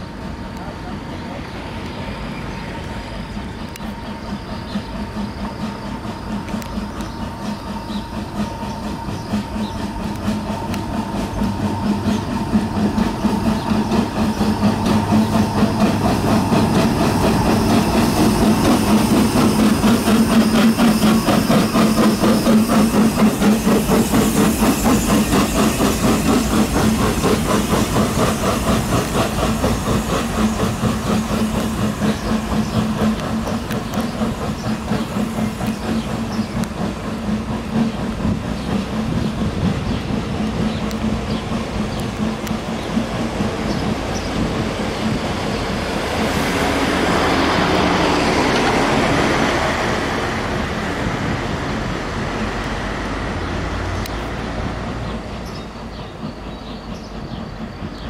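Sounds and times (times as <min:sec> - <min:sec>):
steam locomotive chugging: 0:00.0 - 0:58.0.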